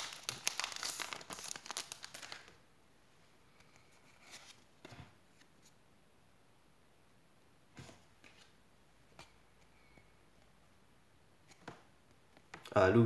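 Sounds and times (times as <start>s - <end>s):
foil wrapper crinkling and tearing: 0.0s - 2.5s
soft card rustles: 0.0s - 2.6s, 3.6s - 5.8s.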